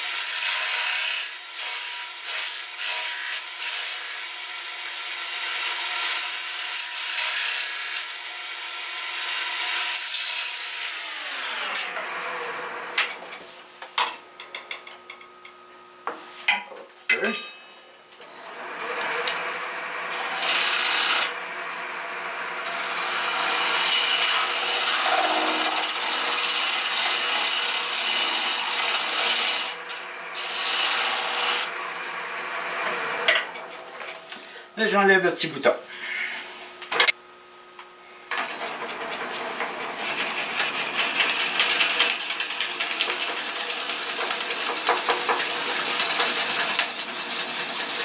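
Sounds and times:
turning tool shaving wood: 0:00.0 - 0:08.2, 0:18.5 - 0:33.3, 0:38.7 - 0:48.0
lathe motor hum: 0:18.5 - 0:34.2.

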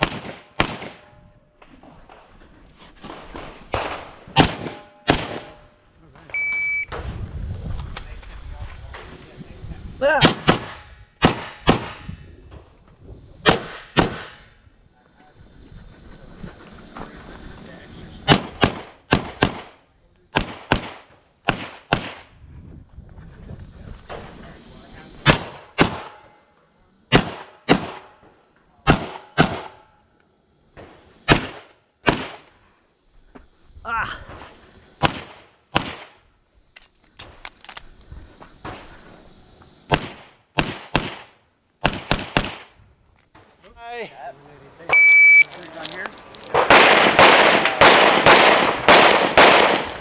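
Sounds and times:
pistol shots: 0:00.0 - 0:01.1, 0:03.7 - 0:05.6, 0:10.2 - 0:12.1, 0:13.4 - 0:14.5, 0:18.3 - 0:19.8, 0:20.4 - 0:22.3, 0:25.2 - 0:26.3, 0:27.1 - 0:28.2, 0:28.9 - 0:29.8, 0:31.3 - 0:32.5, 0:35.0 - 0:36.2, 0:39.9 - 0:42.7, 0:46.5 - 0:50.0.

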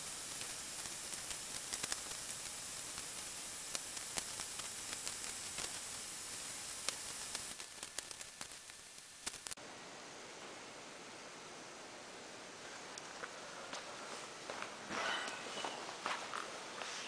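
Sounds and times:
steady hiss: 0:00.0 - 0:17.0
tape tearing and clicking: 0:00.4 - 0:05.9, 0:06.8 - 0:09.6.

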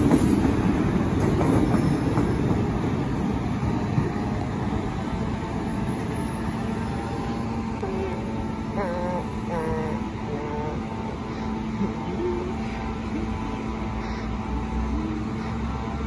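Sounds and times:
train rumbling along track: 0:00.0 - 0:16.0.

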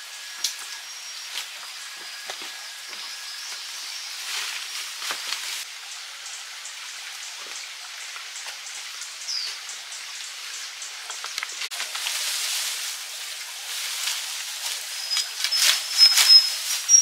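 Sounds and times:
steady rain falling: 0:00.0 - 0:17.0
water drips ticking: 0:05.7 - 0:12.1
high falling chirp: 0:14.9 - 0:17.0.

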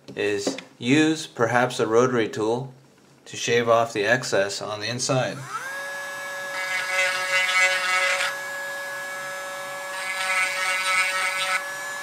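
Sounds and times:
rotary tool whining: 0:05.4 - 0:12.0.

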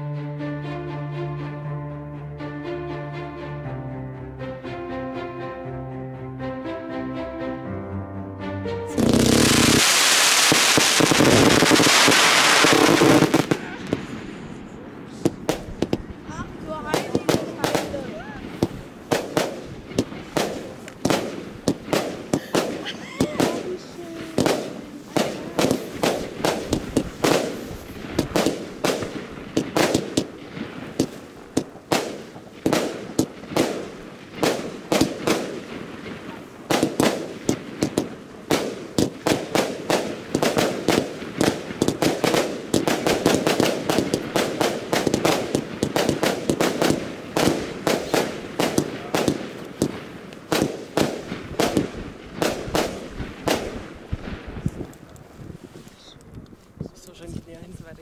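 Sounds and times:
firework shots and bursts: 0:09.0 - 0:55.3.

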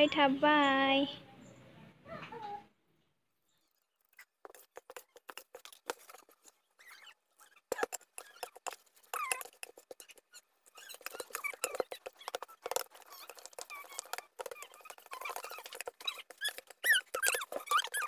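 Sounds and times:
spoon scraping steel bowl: 0:04.1 - 0:18.0
short squeaks: 0:06.7 - 0:08.4.

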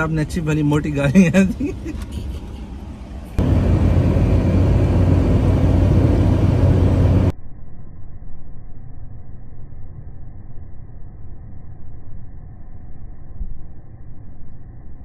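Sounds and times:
car road and wind noise: 0:00.0 - 0:07.3
engine and tyre rumble: 0:00.0 - 0:07.3.

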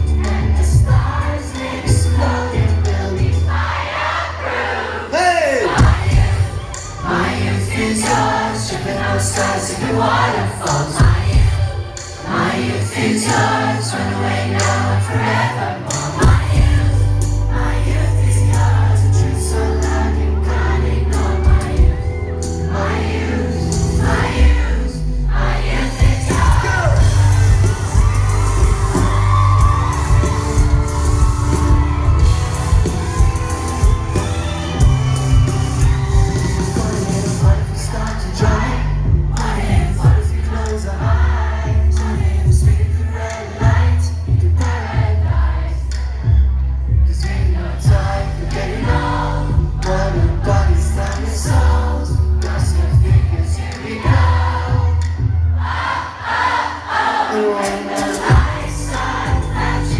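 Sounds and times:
bass and drums beat: 0:00.0 - 0:03.6, 0:05.6 - 0:24.7, 0:25.7 - 0:56.0, 0:58.0 - 0:59.9
keyboards: 0:00.0 - 0:59.9
crowd whooping: 0:04.4 - 0:12.7, 0:20.1 - 0:39.0
man singing: 0:24.7 - 0:28.0, 0:36.4 - 0:43.1, 0:47.2 - 0:55.0.

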